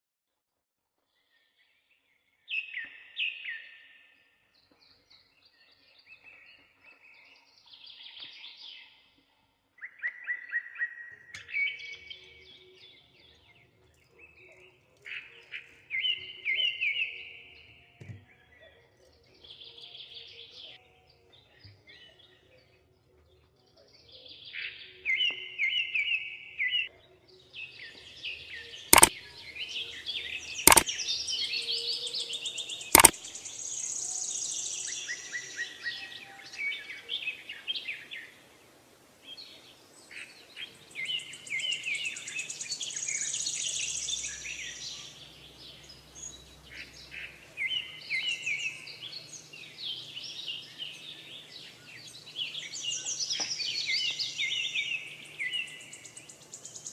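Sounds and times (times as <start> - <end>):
songbirds chirping and singing: 1.1 - 56.9
sharp clicks: 28.9 - 29.1, 30.7 - 30.9, 32.9 - 33.2.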